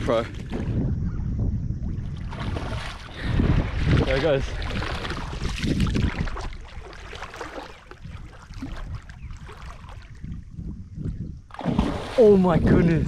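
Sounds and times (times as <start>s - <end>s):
seawater sloshing and lapping: 1.9s - 10.6s, 11.5s - 12.7s.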